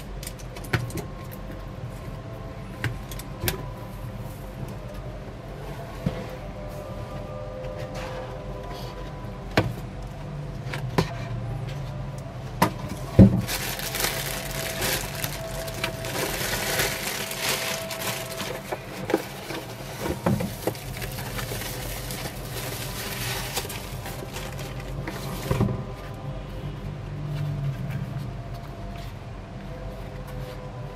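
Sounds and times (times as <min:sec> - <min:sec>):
tissue paper rustling: 0:13.3 - 0:25.5.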